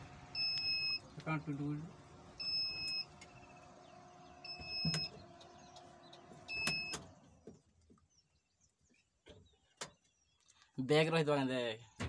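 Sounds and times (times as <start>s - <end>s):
car warning beeper: 0.0s - 1.1s, 2.4s - 3.6s, 4.4s - 5.2s, 6.5s - 7.1s.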